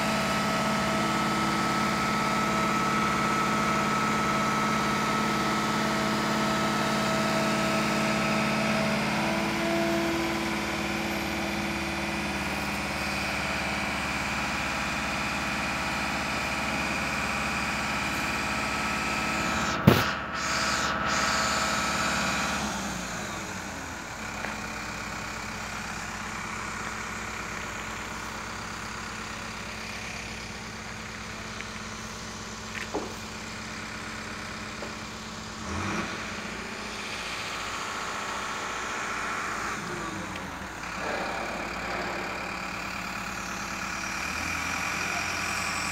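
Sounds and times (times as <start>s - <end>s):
crane diesel engine running: 0.0s - 45.9s
sharp knock: 19.8s - 20.2s.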